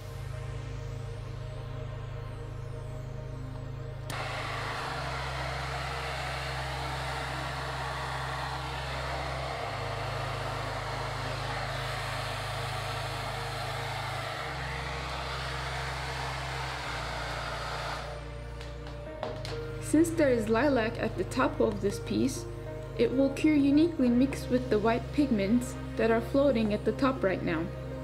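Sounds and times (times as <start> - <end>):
background music with low chords: 0.0 - 28.0
heat gun blowing air: 4.1 - 20.4.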